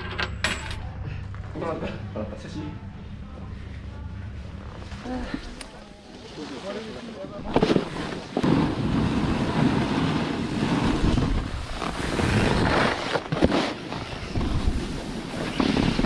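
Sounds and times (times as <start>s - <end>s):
snowboard scraping over snow: 6.3s - 16.0s.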